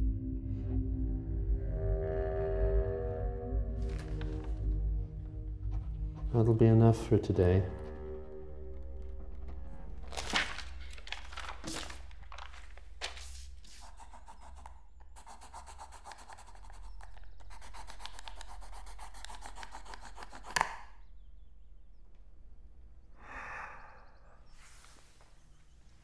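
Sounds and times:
paper pages rustling: 3.8 - 4.6, 9.3 - 20.6
pencil scribbling on notepad: 13.2 - 21.0.

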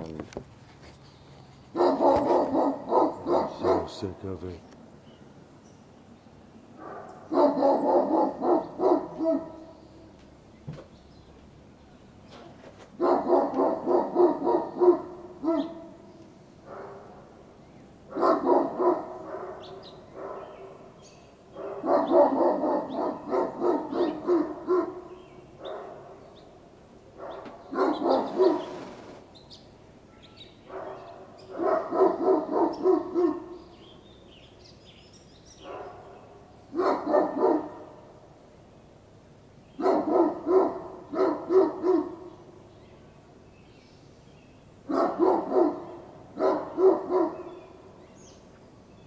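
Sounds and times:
dogs barking: 1.7 - 4.4, 6.8 - 10.1, 12.9 - 17.4, 18.0 - 26.5, 27.1 - 28.8, 30.6 - 33.8, 35.6 - 38.2, 39.8 - 42.5, 44.8 - 47.8.

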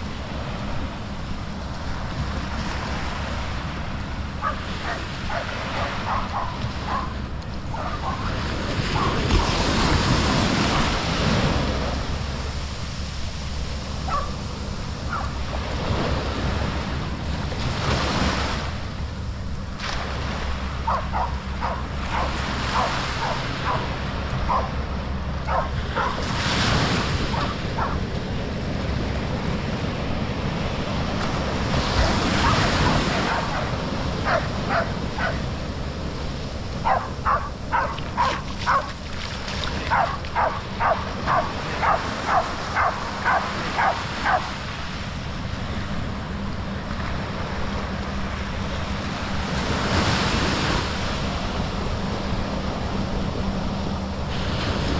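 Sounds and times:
waves breaking on sand: 0.0 - 54.9
wind rumbling on microphone: 0.0 - 54.9
dog barking: 4.4 - 9.6, 14.1 - 14.4, 15.1 - 15.4, 20.8 - 24.8, 25.5 - 26.2, 27.3 - 28.0, 32.4 - 35.4, 36.8 - 39.0, 39.8 - 44.6.

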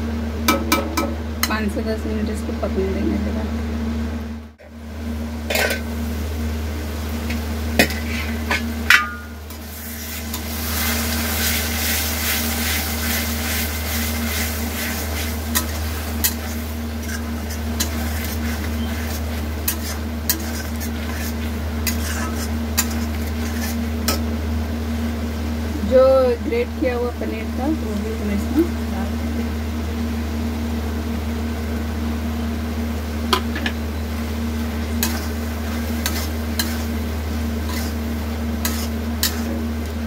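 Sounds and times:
masala sizzling: 0.0 - 40.0
steady low hum: 0.0 - 40.0
metal spatula scraping a pan: 7.8 - 24.2, 35.0 - 37.0, 37.6 - 39.6.

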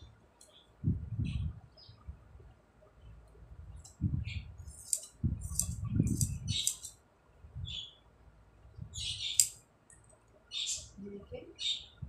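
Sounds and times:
scissors snipping cloth: 4.7 - 6.9, 9.4 - 9.6.

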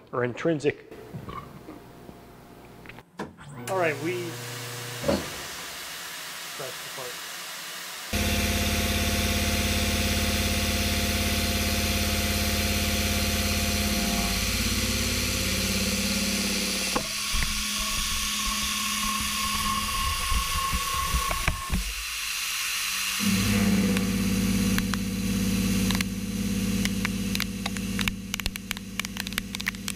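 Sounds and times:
milling machine cutting metal: 3.7 - 26.0.

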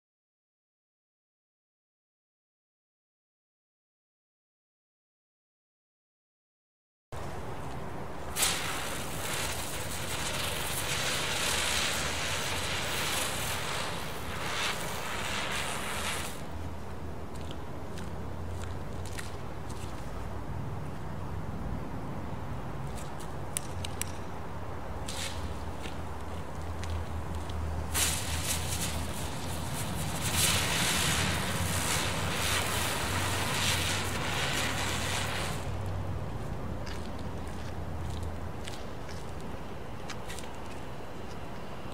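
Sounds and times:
firework spinning and hissing: 8.2 - 16.9, 25.0 - 26.1, 27.6 - 36.1.

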